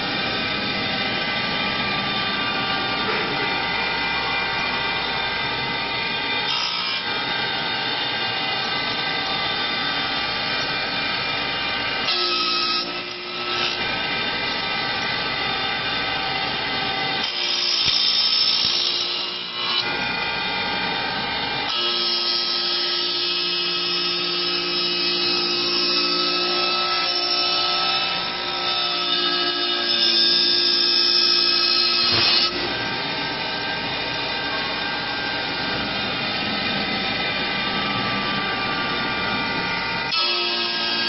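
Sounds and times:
lathe spindle motors whining: 0.0 - 41.0.

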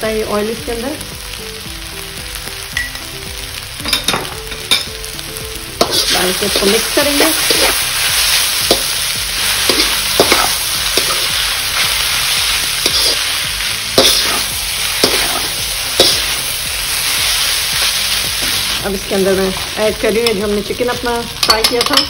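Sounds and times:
noodles sizzling in a wok: 0.0 - 22.0
metal spatula scraping a pan: 5.8 - 13.4, 14.0 - 18.8.

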